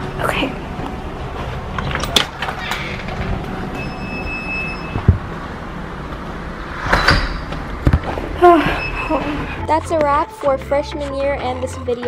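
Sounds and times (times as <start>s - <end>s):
low rumble: 4.9s - 10.0s.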